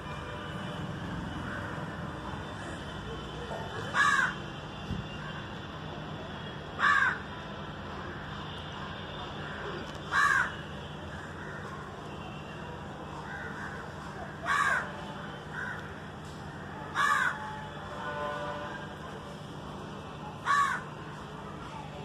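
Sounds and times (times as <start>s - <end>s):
crows cawing: 3.9s - 4.4s, 6.8s - 7.2s, 9.4s - 11.8s, 13.2s - 15.9s, 16.9s - 17.6s, 20.4s - 21.0s.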